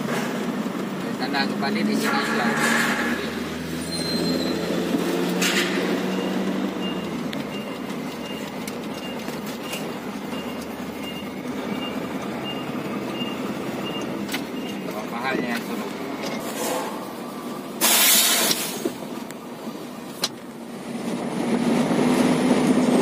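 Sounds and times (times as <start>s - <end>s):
diesel truck engine: 0.0s - 23.0s
short high beeps: 6.1s - 15.5s.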